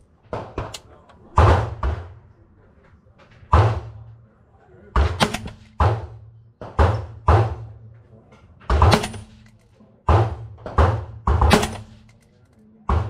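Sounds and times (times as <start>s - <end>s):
suppressed rifle shots: 5.0s - 6.1s, 8.7s - 9.6s, 10.2s - 12.2s.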